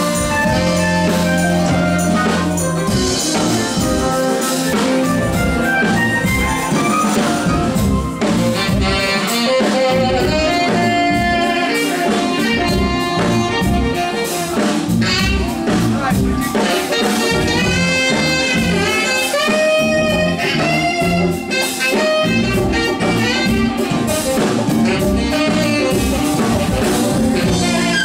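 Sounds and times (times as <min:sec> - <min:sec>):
drums and percussion: 0:00.0 - 0:28.0
electric bass: 0:00.0 - 0:28.0
keyboards: 0:00.0 - 0:28.0
saxophones playing melody: 0:00.0 - 0:28.0.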